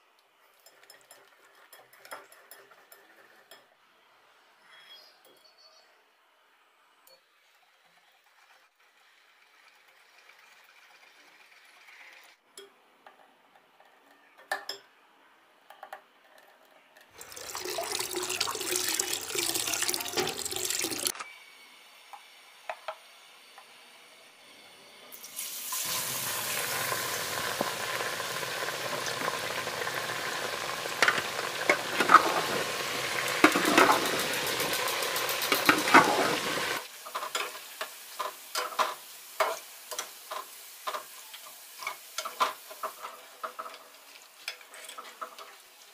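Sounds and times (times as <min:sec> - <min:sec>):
sieve and scoop clinking: 0:17.2 - 0:21.2, 0:31.0 - 0:37.5
batter sizzling in hot oil: 0:25.1 - 0:45.9.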